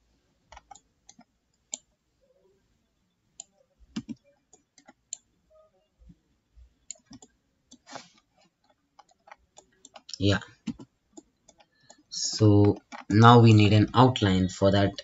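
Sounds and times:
computer mouse clicks: 0.5 - 1.9, 3.4 - 5.3, 6.9 - 13.1.

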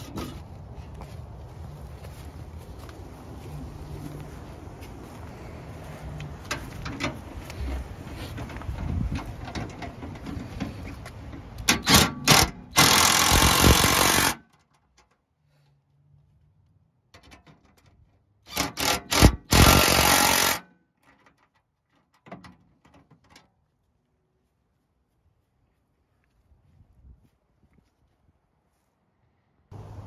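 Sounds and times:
wind noise on microphone: 6.5 - 11.0, 13.0 - 14.3, 26.4 - 28.0
cordless power driver running: 12.3 - 14.4, 18.5 - 20.6.

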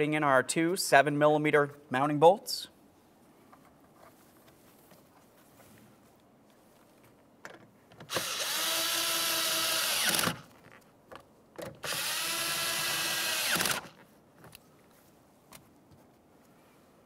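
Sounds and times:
electric screwdriver whine: 8.1 - 10.4, 11.8 - 14.0.

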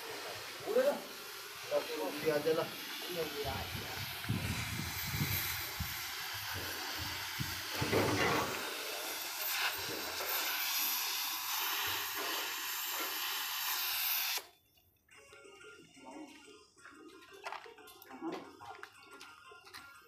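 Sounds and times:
arc welding frying hiss: 0.0 - 14.5.

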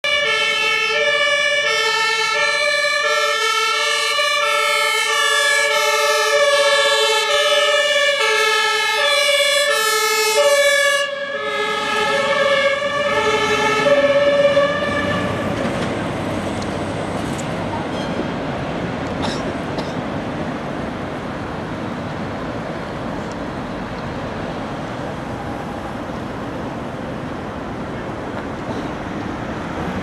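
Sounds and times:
two-tone emergency sirens: 0.0 - 16.8, 22.2 - 28.5
vehicle engine and road noise: 0.1 - 30.0.

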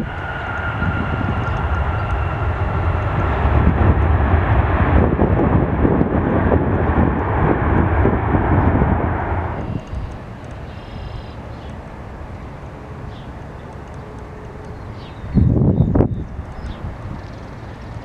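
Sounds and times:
thin engine whine: 0.0 - 11.7
jet engines rumbling: 0.0 - 18.0.

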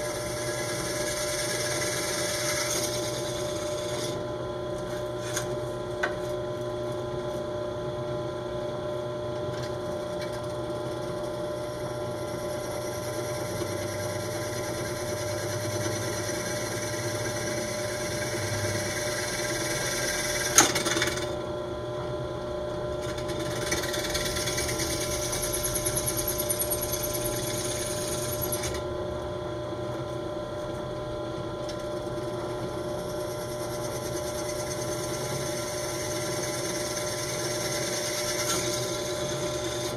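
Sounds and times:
drill press running: 0.0 - 7.2, 7.8 - 39.9.

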